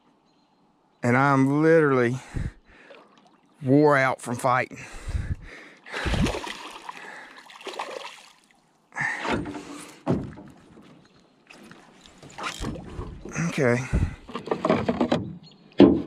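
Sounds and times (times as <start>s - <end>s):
fish thrashing and splashing water: 5.9s - 8.6s
thumps on boat: 9.2s - 11.0s, 12.2s - 16.0s.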